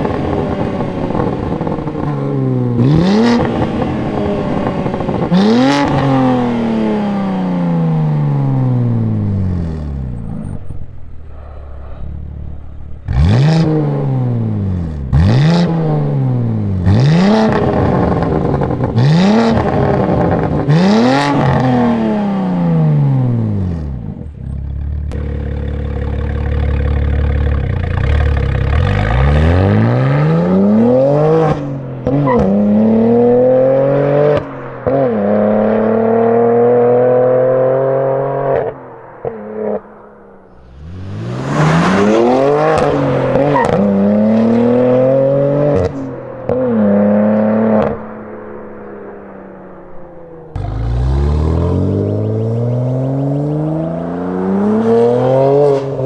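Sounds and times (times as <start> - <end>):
low engine drone: 0.0 - 17.1, 32.7 - 54.5
car engine revving: 0.0 - 56.0.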